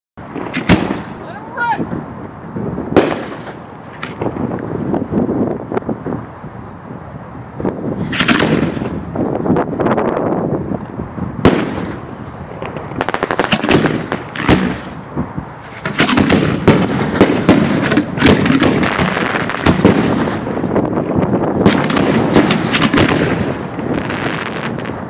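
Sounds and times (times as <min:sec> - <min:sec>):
fireworks bursting and crackling: 0:00.2 - 0:25.0
sharp firework bang: 0:00.3 - 0:01.2, 0:02.9 - 0:04.5, 0:08.0 - 0:09.0, 0:11.4 - 0:15.0, 0:15.7 - 0:20.7, 0:21.6 - 0:25.0.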